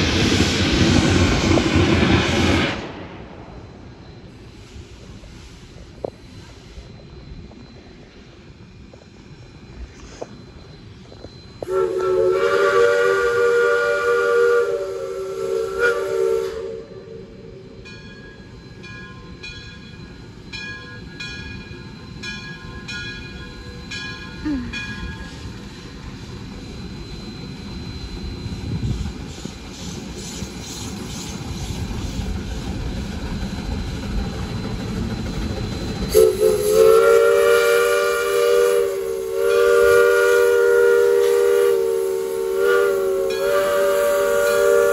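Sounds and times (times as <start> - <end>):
locomotive rolling noise: 0.0 - 44.9
steam whistle chime blasts: 11.6 - 25.5, 36.0 - 44.9.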